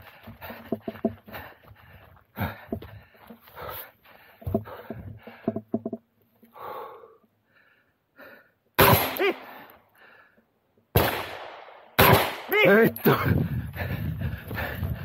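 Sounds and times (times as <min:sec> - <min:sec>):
loud gunshots: 0:08.8 - 0:09.5, 0:11.0 - 0:12.8.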